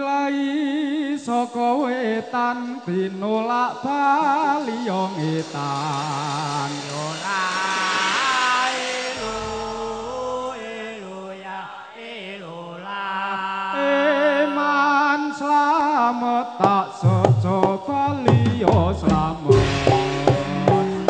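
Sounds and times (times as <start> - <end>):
person singing wavering melody: 2.6 - 11.2
held instrument notes: 4.1 - 10.8, 19.0 - 21.0
drum strikes: 4.2 - 10.7, 17.0 - 21.0.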